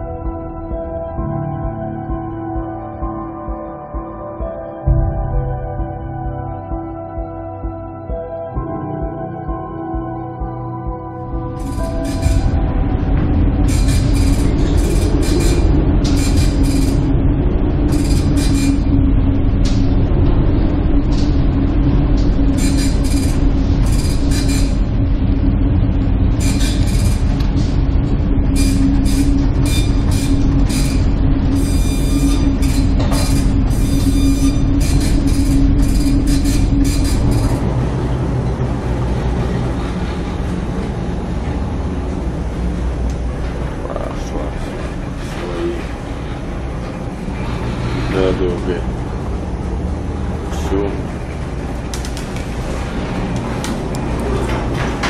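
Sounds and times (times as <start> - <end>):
ship low rumble and drone: 0.0 - 55.0
rattling strokes: 13.6 - 17.1, 17.9 - 18.9.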